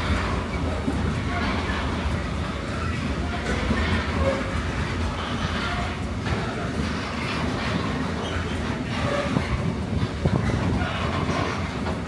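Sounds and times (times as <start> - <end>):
freight train rumbling on rails: 0.0 - 12.0.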